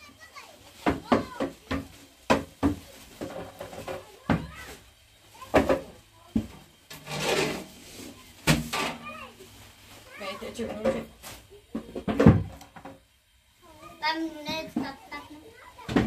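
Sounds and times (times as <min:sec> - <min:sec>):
rustle: 0:07.0 - 0:11.6.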